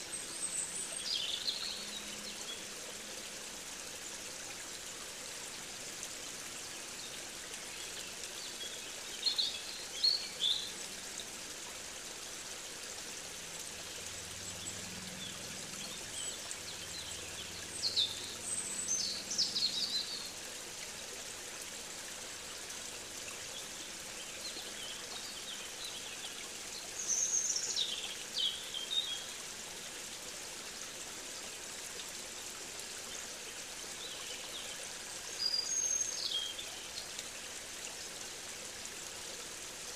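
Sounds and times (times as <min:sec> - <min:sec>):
bird singing: 0:14.4 - 0:20.3.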